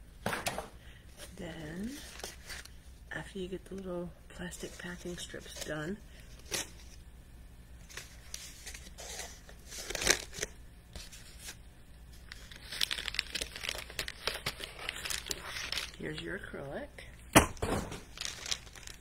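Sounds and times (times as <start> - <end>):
plastic and cardboard crinkling: 1.2 - 2.7, 7.8 - 16.4, 17.6 - 19.0.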